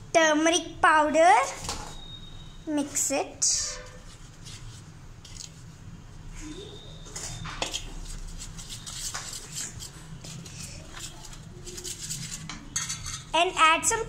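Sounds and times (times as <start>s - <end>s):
spoon scraping steel bowl: 10.8s - 13.4s.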